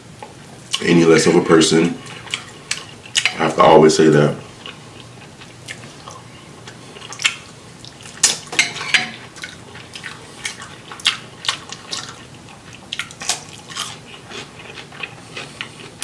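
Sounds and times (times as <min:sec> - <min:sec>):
wet chewing and lip-smacking: 0:04.6 - 0:08.4, 0:09.4 - 0:16.0.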